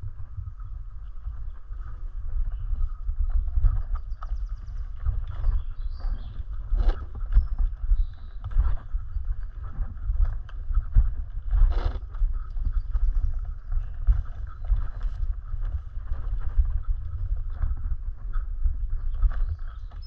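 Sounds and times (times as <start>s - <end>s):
wind buffeting microphone: 0.0s - 20.0s
bike rattling over bumps: 1.2s - 20.0s
bike tyre noise: 4.6s - 19.8s.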